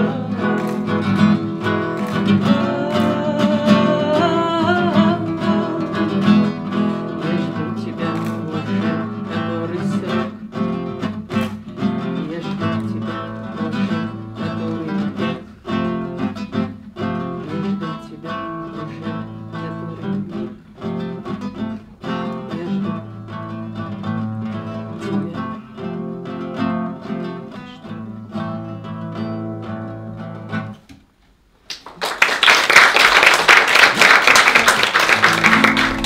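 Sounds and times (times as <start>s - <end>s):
classical guitar playing: 0.0s - 30.9s, 34.9s - 36.0s
audience applause: 31.7s - 36.0s.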